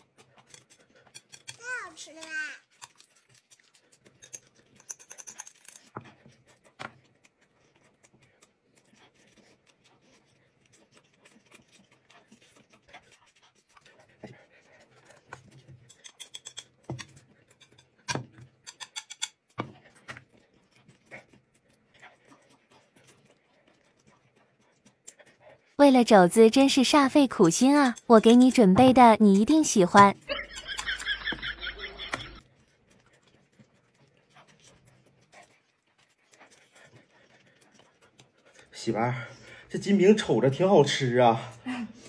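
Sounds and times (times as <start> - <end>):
clicks and crackles of wraps: 0.0 - 9.8
chewing and mouth noises: 0.0 - 42.0.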